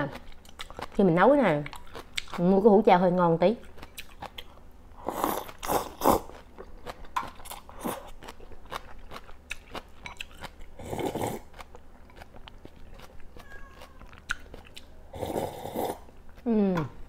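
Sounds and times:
wet chewing with mouth clicks: 0:00.0 - 0:02.4, 0:03.6 - 0:16.6
slurping broth: 0:05.0 - 0:06.3, 0:10.8 - 0:11.5, 0:15.1 - 0:16.1
slurping noodles: 0:05.0 - 0:06.3, 0:10.8 - 0:11.5, 0:15.1 - 0:16.1.

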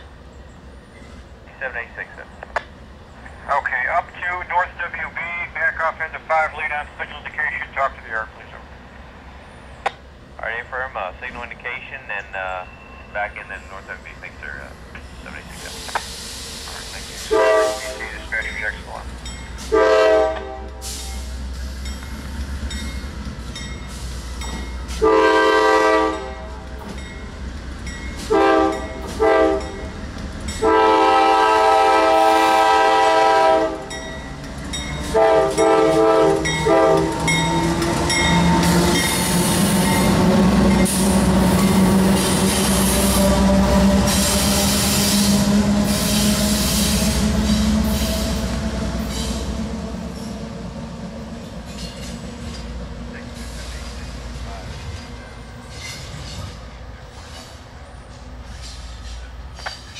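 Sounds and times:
train rail and wheel noise: 0:00.0 - 0:59.9
locomotive air horn blasts: 0:17.2 - 0:18.2, 0:19.6 - 0:21.3, 0:24.9 - 0:26.6, 0:28.3 - 0:29.8, 0:30.6 - 0:34.0, 0:35.1 - 0:40.1.

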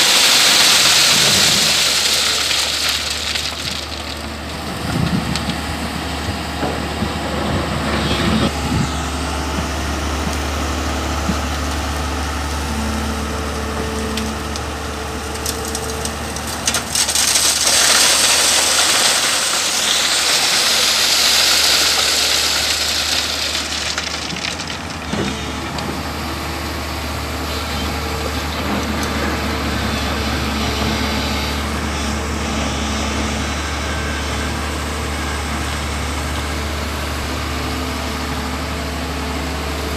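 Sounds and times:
stones pouring onto metal screen: 0:00.0 - 0:04.3, 0:16.4 - 0:25.1
excavator diesel engine running: 0:00.0 - 0:39.9.

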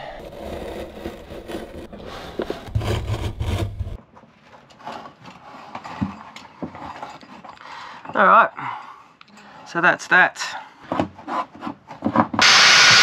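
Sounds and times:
knife scraping through lino: 0:00.0 - 0:04.0.

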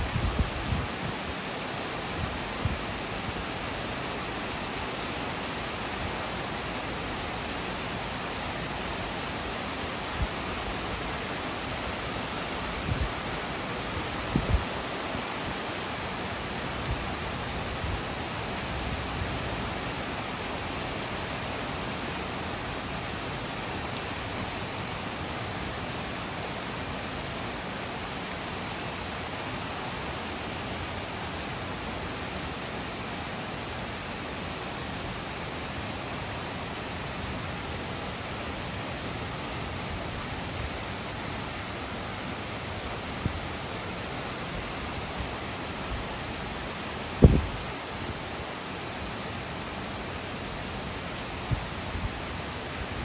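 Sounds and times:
heavy rain on leaves and street: 0:00.0 - 0:53.0.

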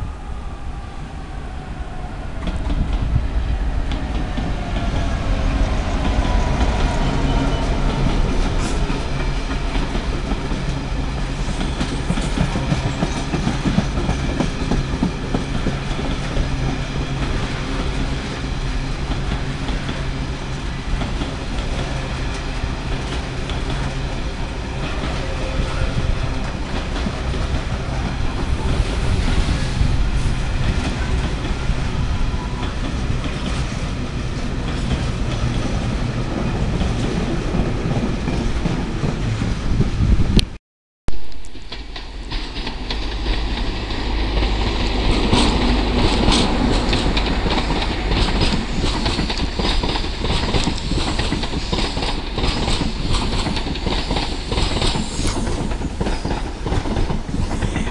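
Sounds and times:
freight train wheels clattering: 0:41.6 - 0:57.9.

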